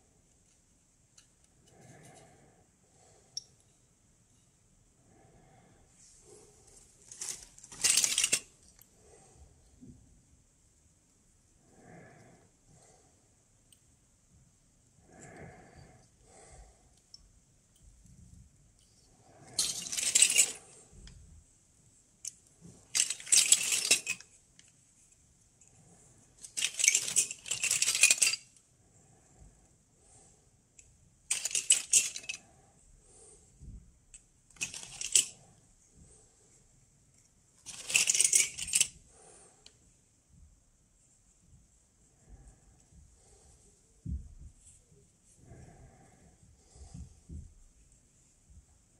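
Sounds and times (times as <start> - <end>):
small metal tubes clinking: 6.2 - 8.9, 18.8 - 21.2, 22.2 - 25.7, 26.4 - 28.6, 31.3 - 32.6, 34.1 - 35.6, 37.6 - 39.8.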